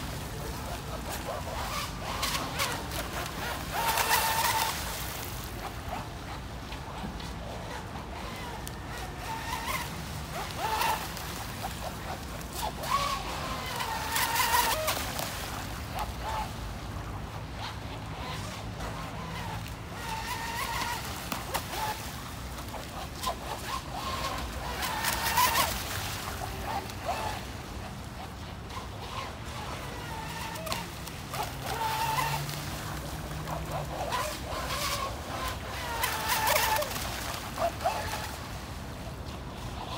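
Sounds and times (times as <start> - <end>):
model boat motor: 0.0 - 39.9.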